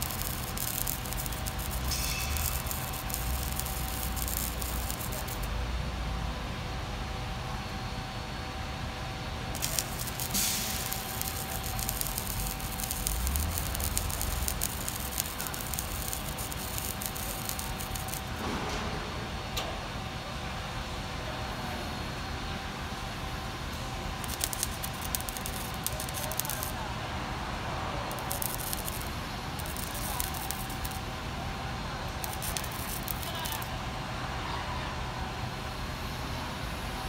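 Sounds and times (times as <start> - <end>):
broad hiss: 0.0 - 5.5, 9.6 - 18.4, 24.2 - 26.7, 32.2 - 33.6
crane engines humming: 0.0 - 18.4.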